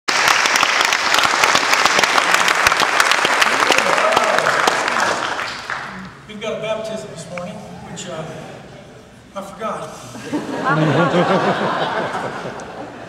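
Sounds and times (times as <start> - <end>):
congregation clapping: 0.1 - 6.4
voices: 5.9 - 11.8.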